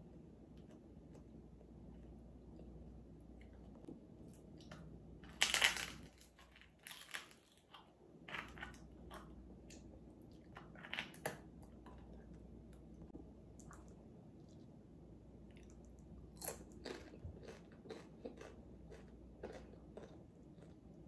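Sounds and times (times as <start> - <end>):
crunchy food being chewed: 0.5 - 12.4, 15.5 - 21.0.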